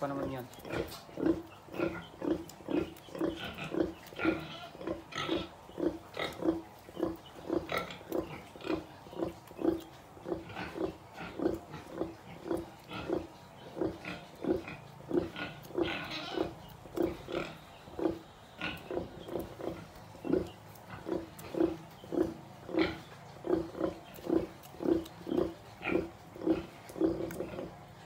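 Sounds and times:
sow grunting: 0.0s - 28.0s.

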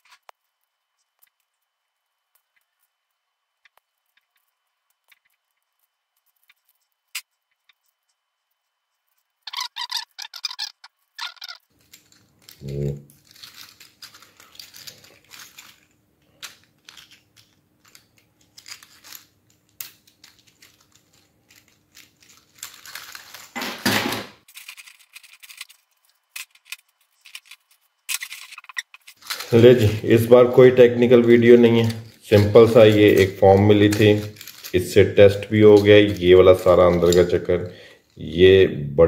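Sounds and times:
crackling scrape: 0.0s - 23.7s, 24.4s - 38.2s
plastic toy joints clicking: 31.2s - 34.8s.

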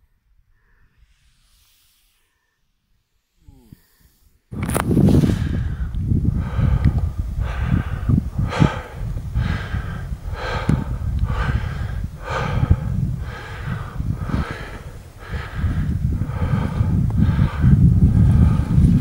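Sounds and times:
person breathing hard: 0.2s - 4.5s, 5.1s - 19.0s
wind rumble on microphone: 4.5s - 19.0s.

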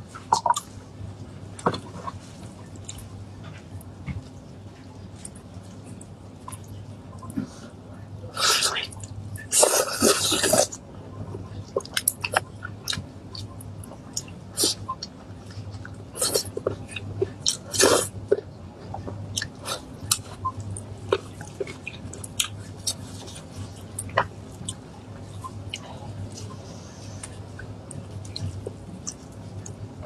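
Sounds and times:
wet chewing and lip-smacking: 27.2s - 29.8s.

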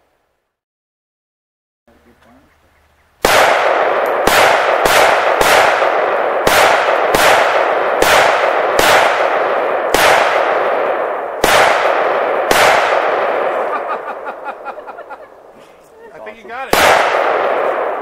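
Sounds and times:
gunshots with long echo: 3.2s - 15.5s, 16.5s - 18.0s.

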